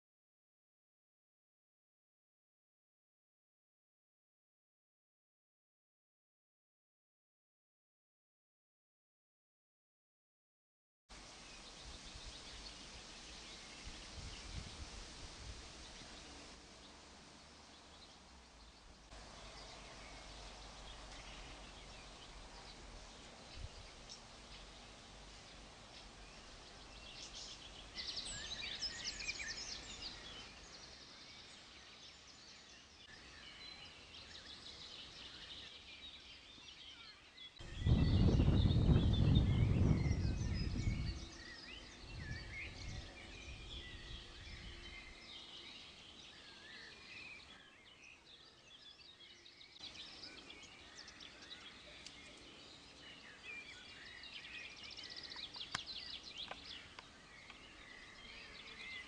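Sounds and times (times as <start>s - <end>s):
faint background noise: 11.1s - 59.0s
songbirds singing: 11.2s - 59.0s
loud low rumble: 37.7s - 41.1s.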